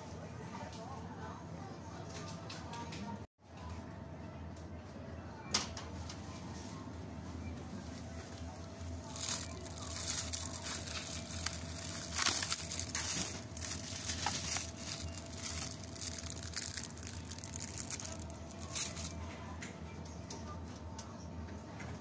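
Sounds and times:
plastic bags crinkling: 8.0 - 19.2.

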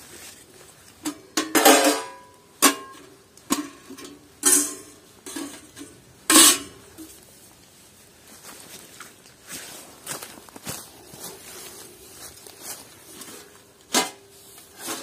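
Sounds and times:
metal cookware clanking: 1.1 - 7.1.

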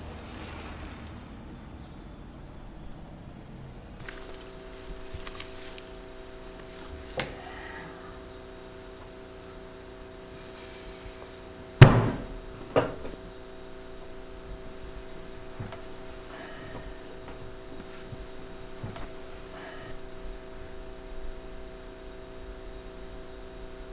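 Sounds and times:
steady electrical hum: 2.5 - 23.9
heavy thud: 11.8 - 20.1.

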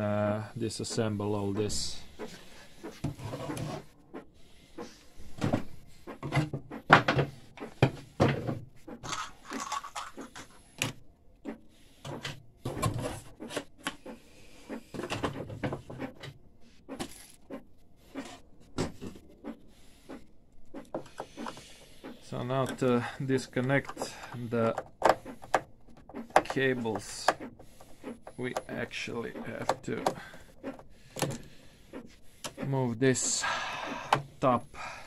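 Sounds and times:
printer parts clicking and clunking: 5.4 - 14.1, 22.3 - 33.4.

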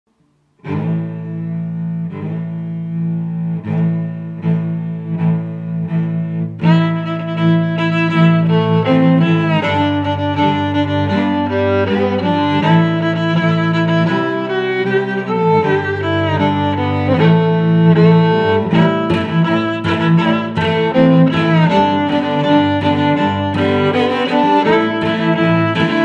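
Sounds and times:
bowed strings music: 0.2 - 26.0.

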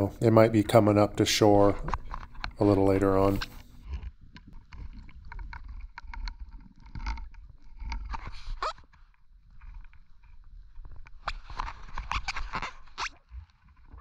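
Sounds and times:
underwater clicks and knocks: 1.8 - 2.6, 3.8 - 14.0.

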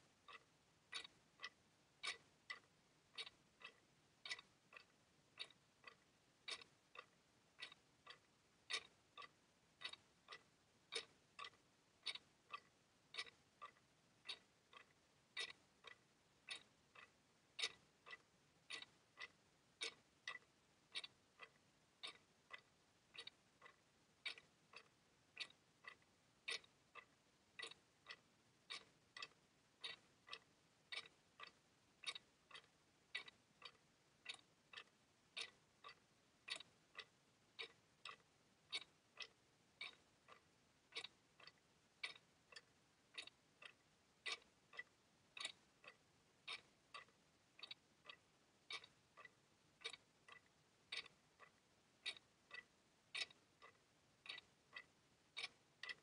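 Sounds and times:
clock ticking: 0.0 - 56.0.

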